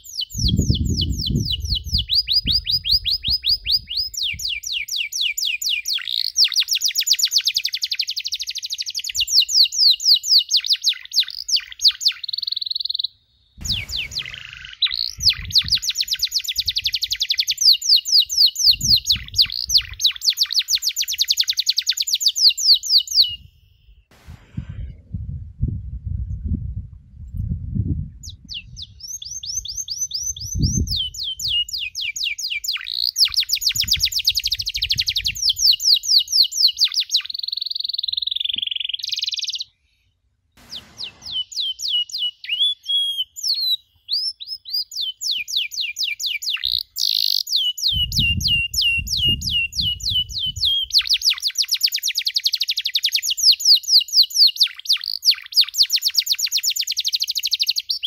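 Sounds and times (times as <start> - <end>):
canary singing trills: 0.0 - 23.9, 28.2 - 39.7, 40.6 - 58.0
low rumbles: 13.6 - 15.7, 24.1 - 28.5.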